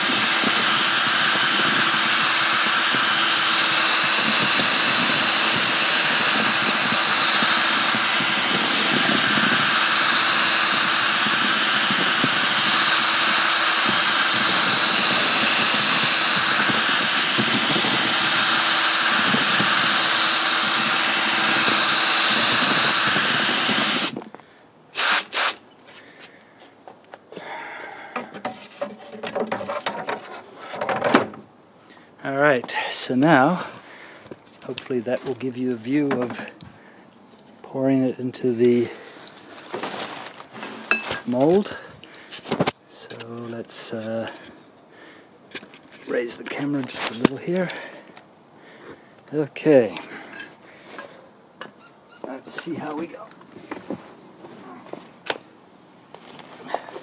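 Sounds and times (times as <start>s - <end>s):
power drill mixing slurry: 0.0s - 24.2s, 25.0s - 25.6s, 46.1s - 48.0s.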